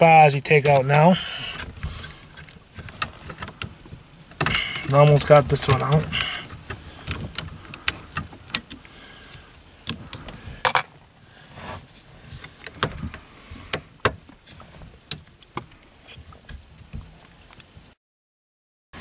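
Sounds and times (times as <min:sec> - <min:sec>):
metal parts clattering: 0:04.4 - 0:06.5.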